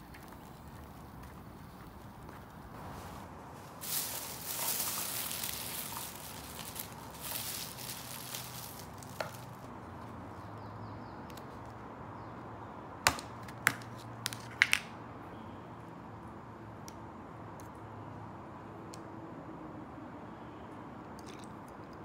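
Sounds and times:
rustling: 0.0s - 9.7s.

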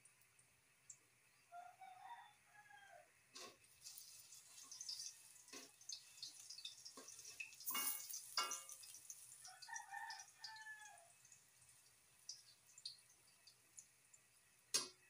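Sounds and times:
rooster crowing: 1.5s - 3.1s, 9.4s - 11.1s
tongs clicking and scraping wok: 3.4s - 10.6s
oil sizzling: 3.4s - 15.0s
wok strikes ringing: 7.7s - 8.8s.

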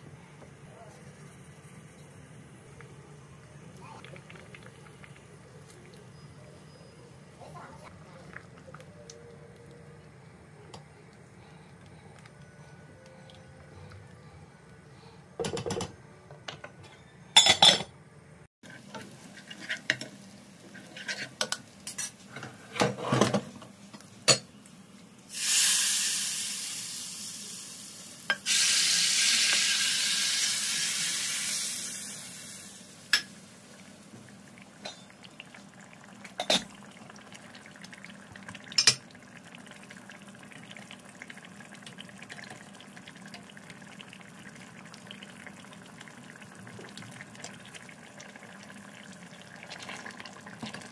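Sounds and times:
loud sizzling: 25.3s - 33.8s.

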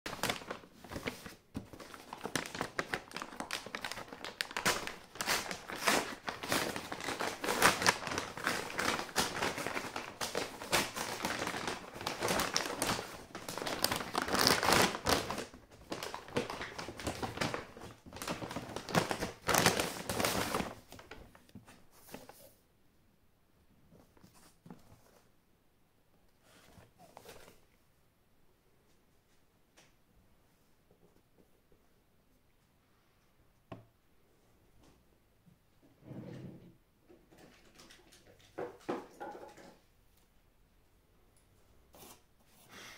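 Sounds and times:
paper bag crinkling: 0.1s - 21.4s.

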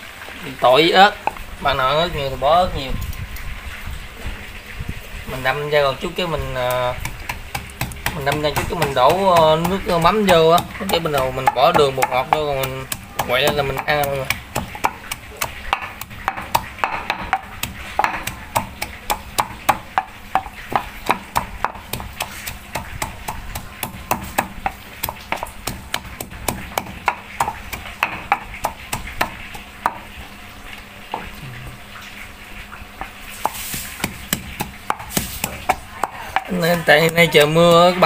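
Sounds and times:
pestle pounding in mortar: 5.6s - 30.2s, 33.0s - 38.0s.

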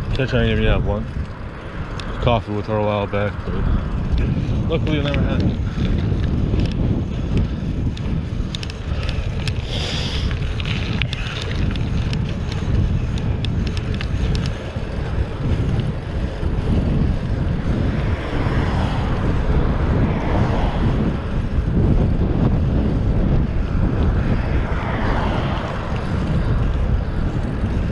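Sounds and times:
wind buffeting microphone: 0.0s - 27.9s
light clicks and rattles: 4.1s - 14.9s.

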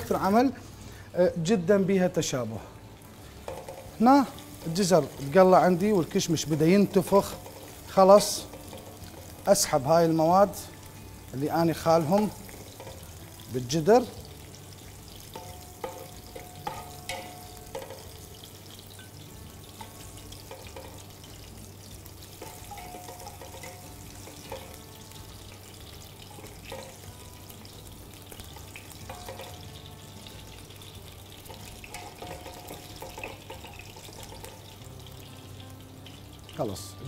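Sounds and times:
hot oil sizzling: 0.0s - 37.0s
utensil clinking against pot: 3.4s - 6.2s, 12.0s - 13.2s, 15.3s - 19.2s, 19.8s - 21.4s, 22.4s - 24.9s, 26.4s - 27.1s, 28.6s - 29.7s, 31.5s - 34.7s.

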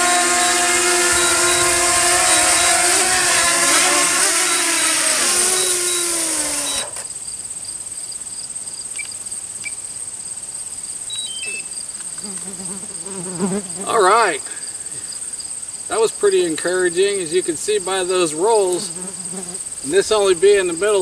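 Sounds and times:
drone propeller whine: 0.0s - 7.0s
high insect chorus: 0.0s - 21.0s.

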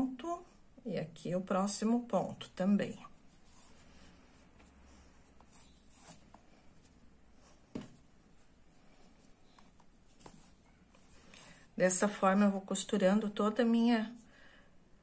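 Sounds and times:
faint rustling of twine: 2.9s - 11.8s.

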